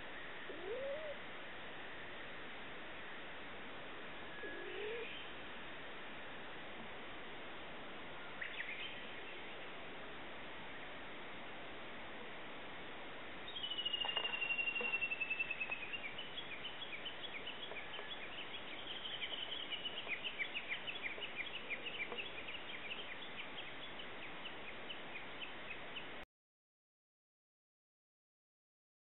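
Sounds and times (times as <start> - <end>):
steady background hiss: 0.0 - 26.2
bird singing: 4.3 - 5.4, 8.2 - 9.6, 13.5 - 26.1.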